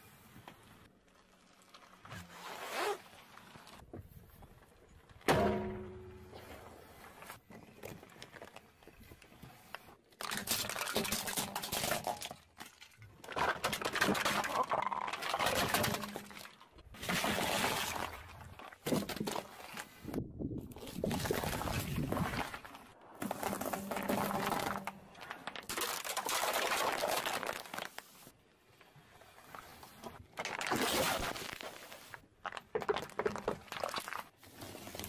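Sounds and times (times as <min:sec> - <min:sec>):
plastic toys crackling and crunching: 0:10.0 - 0:20.1, 0:20.7 - 0:28.3, 0:29.4 - 0:35.0.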